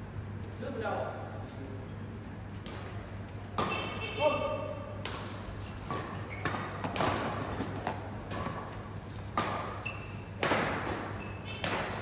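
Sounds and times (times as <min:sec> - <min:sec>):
steady low hum: 0:00.0 - 0:12.0
racket hitting shuttlecock: 0:02.5 - 0:12.0
shoes squeaking on court: 0:05.1 - 0:12.0.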